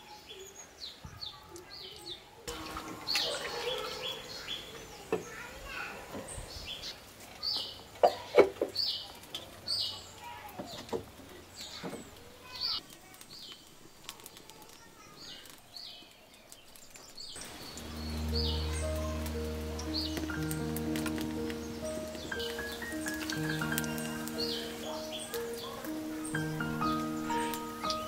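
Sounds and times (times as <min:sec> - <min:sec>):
bird chirping: 0:14.8 - 0:28.0
music: 0:17.4 - 0:28.0.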